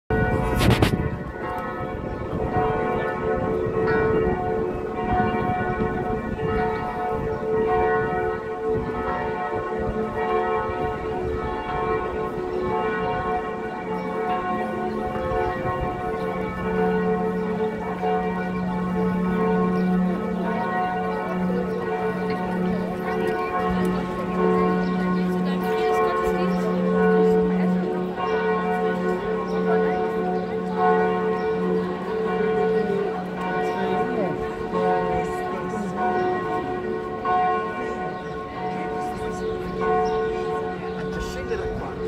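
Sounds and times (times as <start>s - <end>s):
bells ringing: 0.1s - 42.0s.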